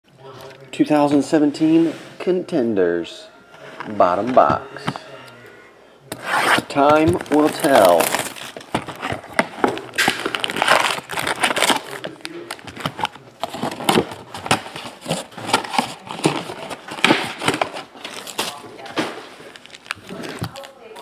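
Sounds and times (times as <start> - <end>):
foil packs crinkling: 6.5 - 21.0.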